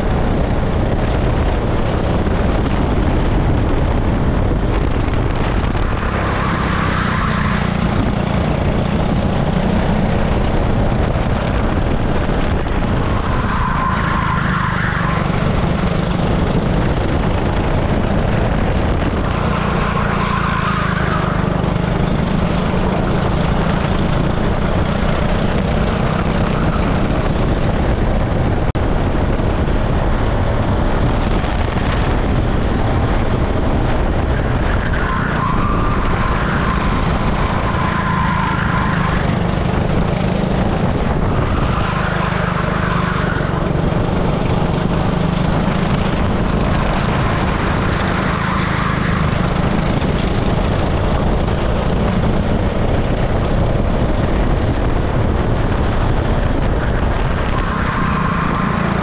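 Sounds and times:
kart engine running: 0.0 - 59.0
tyre squeal: 5.7 - 8.2, 12.8 - 15.8, 19.2 - 22.3, 34.3 - 43.8, 46.1 - 50.1, 56.9 - 59.0.

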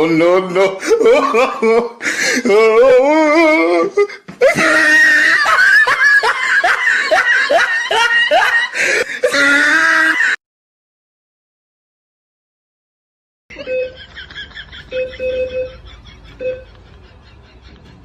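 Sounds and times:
loud laughter: 0.2 - 10.4, 13.5 - 18.0.

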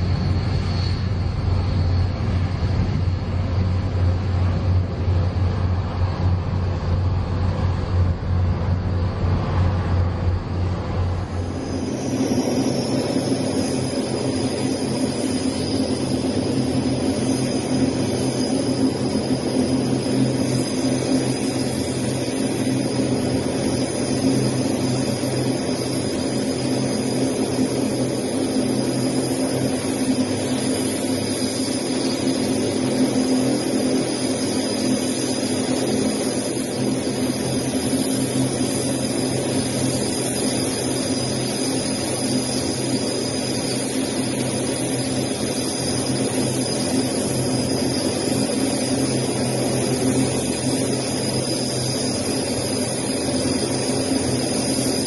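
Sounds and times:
turboprop engines running: 0.0 - 55.0.

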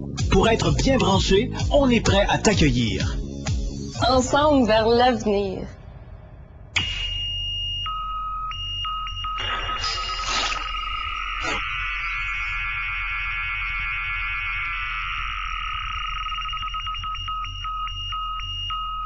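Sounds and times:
sharp electronic hit: 6.7 - 7.7
warbling high tones and rapid pips: 6.8 - 17.4
high electronic beeping tones: 6.8 - 19.0.

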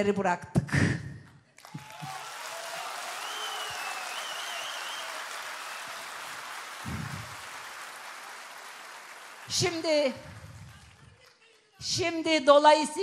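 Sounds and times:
crowd applauding: 1.6 - 11.8.

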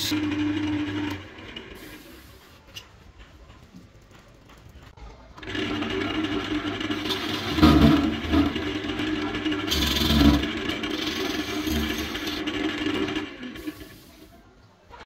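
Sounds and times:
wood lathe turning tool cutting: 0.0 - 2.1, 5.4 - 14.2.

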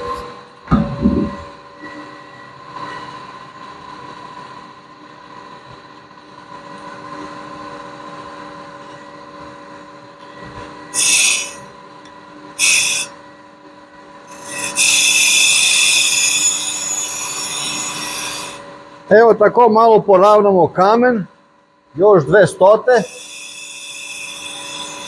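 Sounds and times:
grinding wheel humming: 10.9 - 11.7, 12.6 - 13.2, 14.2 - 18.8, 23.0 - 25.0.

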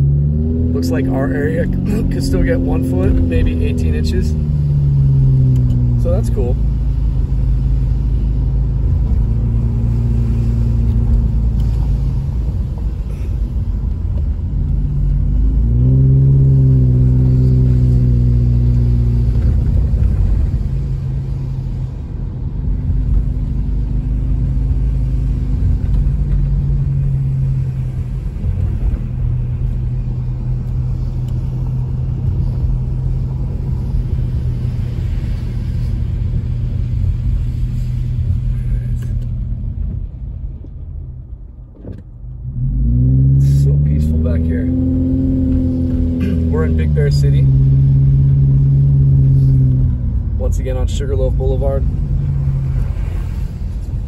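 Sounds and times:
car engine from inside cabin: 0.0 - 54.0
road noise: 0.0 - 54.0.

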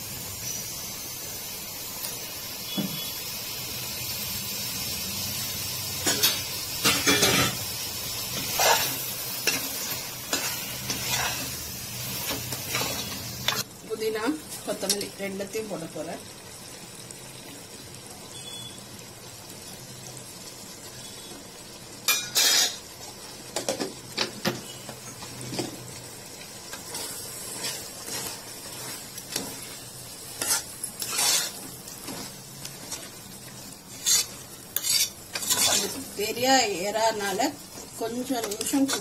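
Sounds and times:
low steady sizzle: 0.0 - 39.0
metal spoon stirring in a pot: 8.4 - 11.5, 22.1 - 22.8, 26.7 - 36.4, 37.8 - 39.0
spoon scraping and knocking pot: 34.0 - 36.0.

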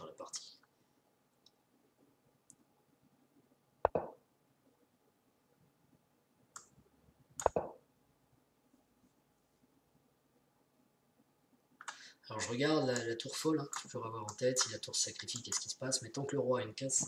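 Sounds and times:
chess move clicks: 3.8 - 4.2, 7.4 - 7.8.

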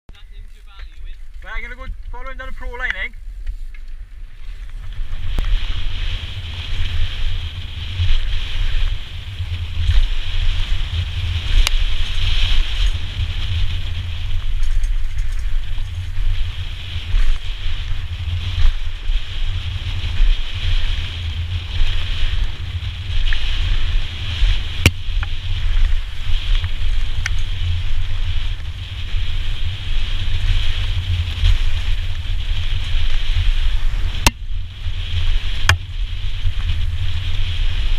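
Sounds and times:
tyres on dirt trail: 0.1 - 37.9
wind buffeting microphone: 0.1 - 37.9.

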